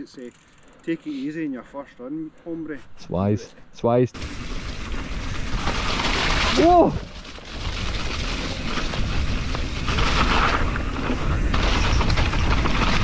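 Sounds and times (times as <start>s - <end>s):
bike rattles and ticks: 0.0s - 1.1s, 4.2s - 13.0s.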